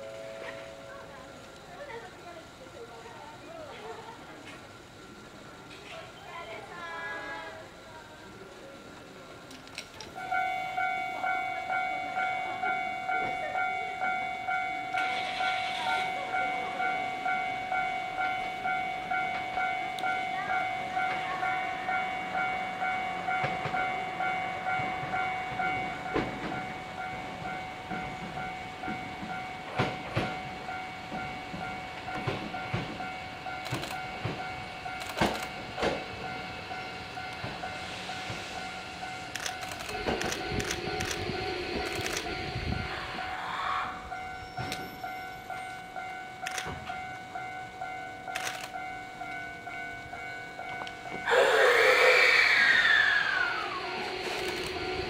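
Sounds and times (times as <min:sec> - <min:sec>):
electronic warning bell ringing: 0:10.2 - 0:52.4, 0:53.2 - 0:55.0
train wheels clicking over rail joints: 0:23.3 - 0:43.4, 0:44.0 - 0:55.0.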